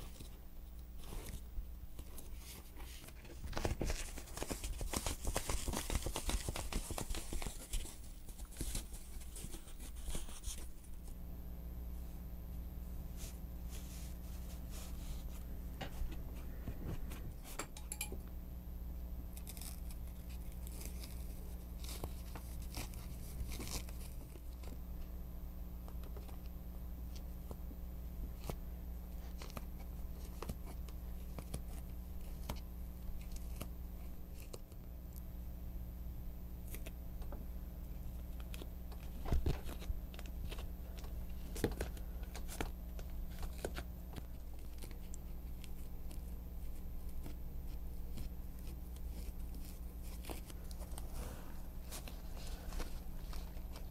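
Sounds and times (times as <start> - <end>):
steady low hum: 0.0 - 53.9
foam pieces rustling and tapping: 2.0 - 10.6.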